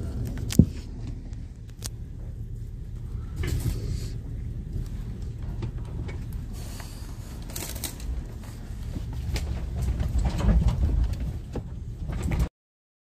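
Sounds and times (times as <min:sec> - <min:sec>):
truck cab rumble: 0:00.0 - 0:12.5
knocks and rattles: 0:07.4 - 0:12.5.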